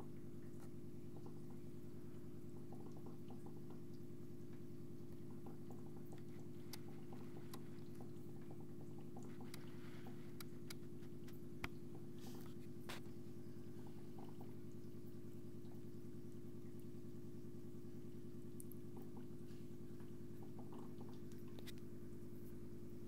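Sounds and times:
aquarium equipment humming: 0.0 - 23.0
faint clicks and ticks: 2.5 - 13.1.

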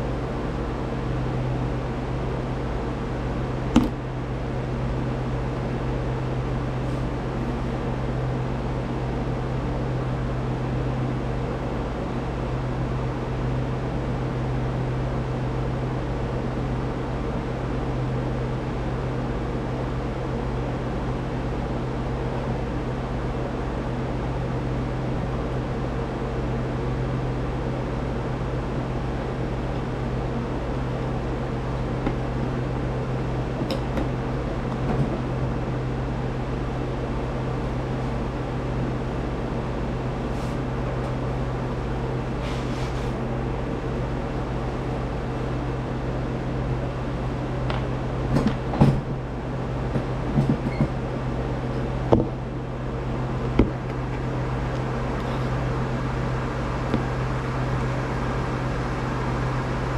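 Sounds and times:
mechanical hum with low drone: 0.0 - 59.9
hiss: 42.4 - 43.2.

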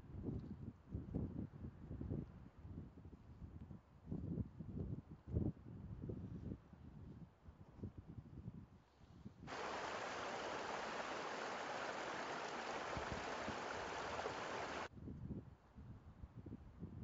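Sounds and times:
low uneven rumble: 9.5 - 14.9
stream rushing over rocks: 9.5 - 14.9.

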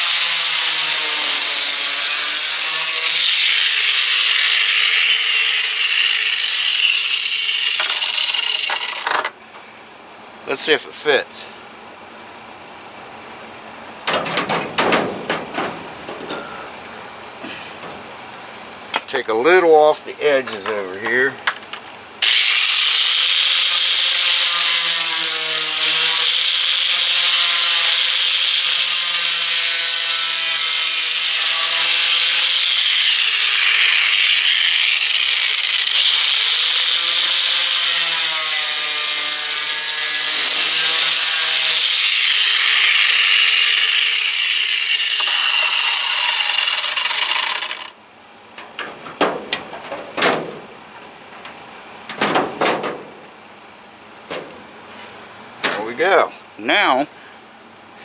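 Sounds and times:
angle grinder grinding: 0.0 - 9.2, 22.2 - 48.0
knocks and rattles of vent grille: 14.0 - 16.5, 48.6 - 53.3, 54.3 - 54.6.

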